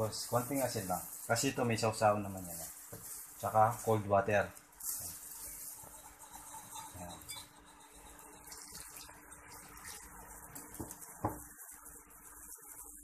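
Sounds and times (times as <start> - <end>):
whisk scraping in bowl: 0.0 - 13.0.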